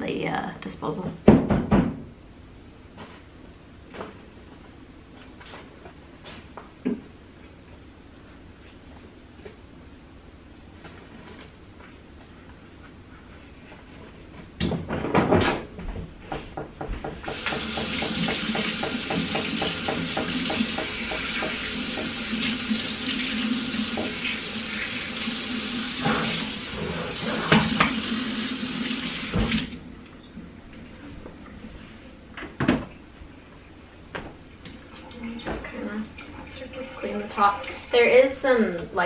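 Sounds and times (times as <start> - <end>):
faucet running into steel sink: 17.3 - 29.8.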